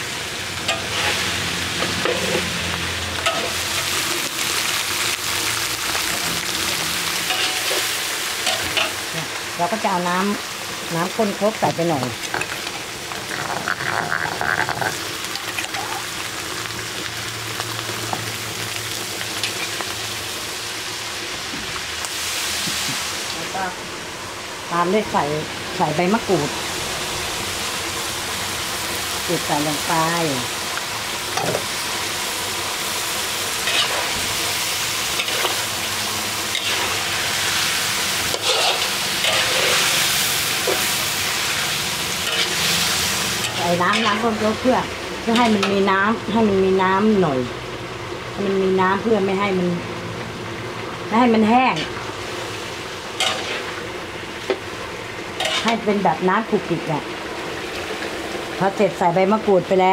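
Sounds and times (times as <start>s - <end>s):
fish sizzling in a wok: 0.0s - 59.9s
spatula scraping a wok: 0.7s - 2.6s, 7.1s - 9.0s, 33.4s - 35.7s, 36.5s - 44.4s, 53.1s - 53.8s, 55.4s - 55.9s.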